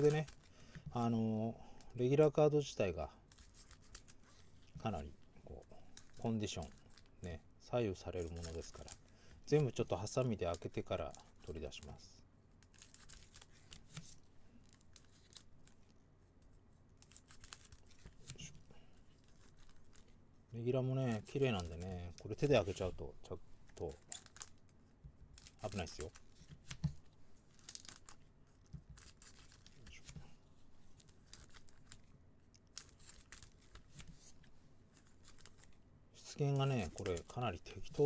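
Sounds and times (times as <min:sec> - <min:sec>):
foil wrapper crinkling: 0:08.0 - 0:12.0, 0:17.0 - 0:18.5, 0:20.9 - 0:23.0, 0:23.7 - 0:24.7, 0:25.4 - 0:28.3, 0:28.9 - 0:30.2, 0:30.9 - 0:35.8, 0:36.5 - 0:38.0.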